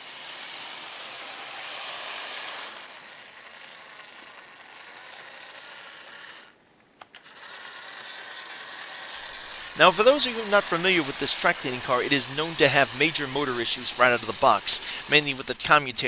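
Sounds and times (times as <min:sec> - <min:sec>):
model train motor whirring: 0:00.0 - 0:16.0
small clicks: 0:06.4 - 0:07.6.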